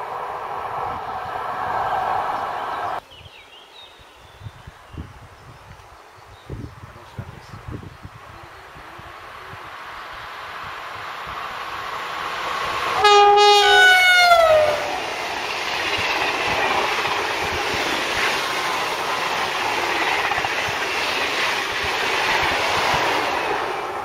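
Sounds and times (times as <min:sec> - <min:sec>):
high-speed train rushing past: 0:00.0 - 0:03.0, 0:08.7 - 0:24.0
train horn: 0:13.0 - 0:15.0.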